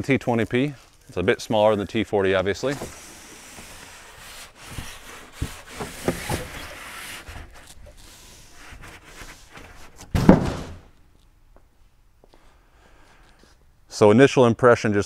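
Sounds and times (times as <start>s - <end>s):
cardboard scraping and rubbing: 2.6s - 10.4s
cardboard box thump: 10.1s - 10.9s.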